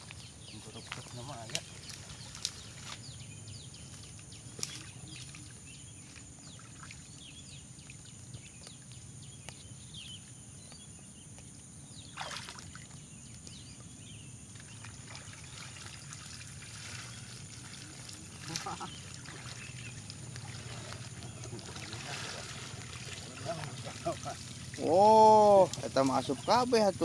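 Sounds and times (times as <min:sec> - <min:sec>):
dry fronds clicking and rustling: 0:00.0 - 0:06.3, 0:17.0 - 0:27.0
shallow water sloshing and trickling: 0:00.0 - 0:10.4, 0:11.4 - 0:27.0.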